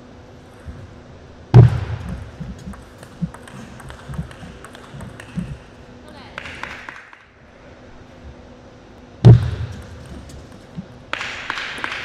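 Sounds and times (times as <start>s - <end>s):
loud thump: 1.6s - 2.2s, 9.2s - 9.8s
table tennis ball clicking: 2.1s - 5.7s.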